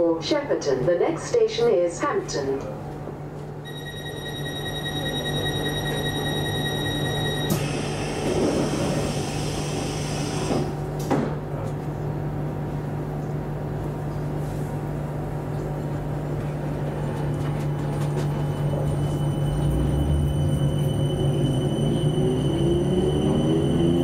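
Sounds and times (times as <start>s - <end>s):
train humming: 3.8s - 24.0s
sliding doors shutting: 7.4s - 11.4s
traction motor whine: 17.9s - 24.0s.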